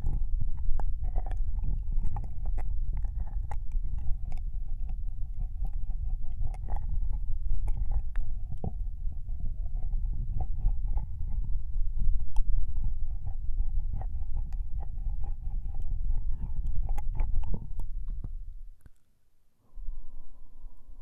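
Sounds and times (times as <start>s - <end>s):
wet licking mouth sounds: 0.0s - 11.4s
low rumble: 0.0s - 18.8s, 19.6s - 21.0s.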